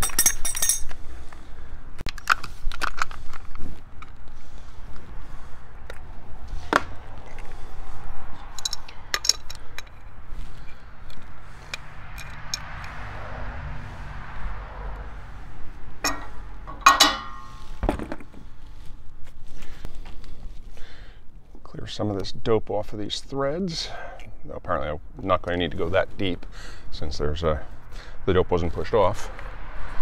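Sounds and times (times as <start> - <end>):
ringing metal clink: 0.0 - 0.9, 16.0 - 17.6
wrench and fittings clinking: 0.0 - 1.0, 8.5 - 10.8, 16.0 - 17.7
road traffic noise: 0.0 - 30.0.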